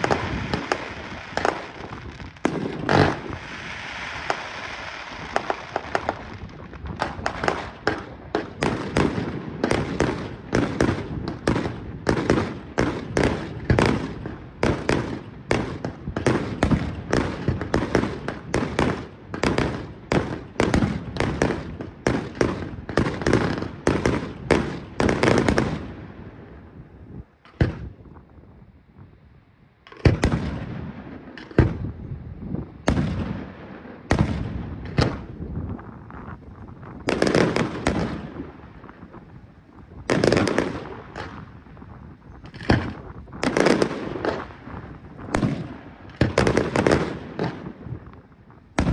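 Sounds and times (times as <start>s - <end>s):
firework launches and bursts: 0.0s - 26.6s
hiss of launching fireworks: 0.0s - 28.4s, 29.9s - 48.9s.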